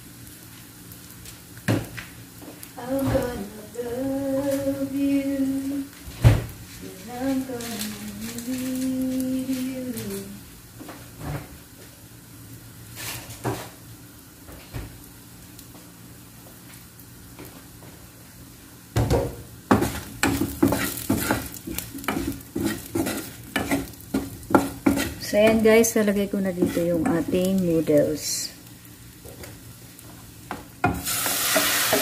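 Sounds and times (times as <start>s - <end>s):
faint frying sizzle: 0.0s - 32.0s
wooden spatula scraping a wok: 19.7s - 27.6s, 31.0s - 32.0s.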